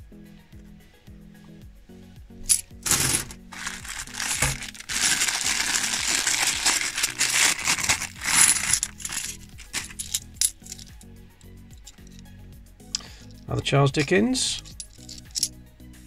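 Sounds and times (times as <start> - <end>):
background music: 0.0 - 16.0
coins clinking and jingling: 2.5 - 11.0, 11.8 - 12.2, 13.0 - 15.6.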